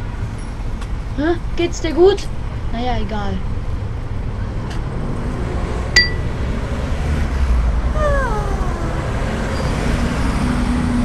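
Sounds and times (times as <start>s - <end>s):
sharp click with ping: 6.0s - 6.3s
meow-like falling cry: 8.0s - 9.2s.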